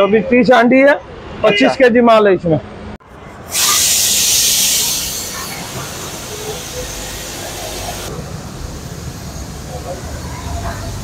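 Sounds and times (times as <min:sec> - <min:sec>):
loud hiss: 0:03.5 - 0:09.7.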